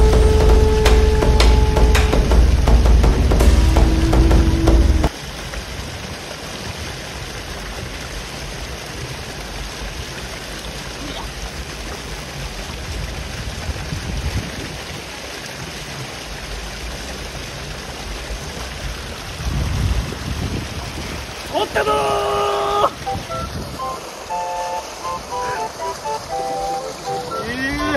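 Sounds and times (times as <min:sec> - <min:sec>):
low rumble: 0:00.0 - 0:05.1
river water rushing: 0:00.0 - 0:27.9.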